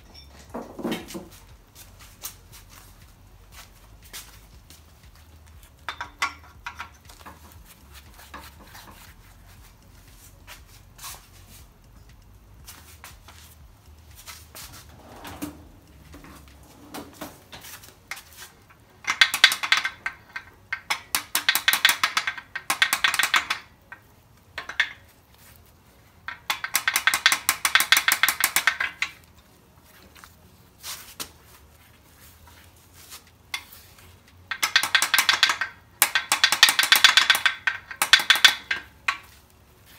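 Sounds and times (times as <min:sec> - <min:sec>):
metal clinks: 0:00.0 - 0:00.6, 0:05.6 - 0:07.7
ratchet clicking: 0:19.0 - 0:23.7, 0:26.3 - 0:29.2, 0:34.5 - 0:39.4.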